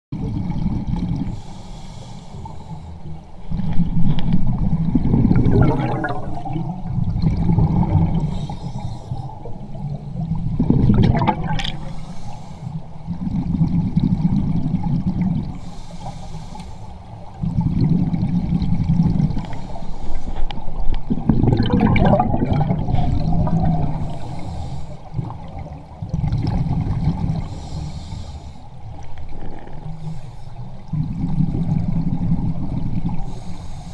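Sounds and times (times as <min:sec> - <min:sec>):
scuba regulator breathing underwater: 0:01.2 - 0:03.6, 0:07.6 - 0:13.0, 0:15.6 - 0:17.2, 0:19.4 - 0:20.6, 0:21.2 - 0:25.5, 0:27.2 - 0:28.8, 0:29.4 - 0:31.5, 0:33.2 - 0:33.9
bubbles gurgling: 0:03.6 - 0:08.4, 0:09.4 - 0:12.0, 0:17.4 - 0:19.4, 0:21.0 - 0:24.4, 0:25.1 - 0:27.5, 0:30.9 - 0:33.4.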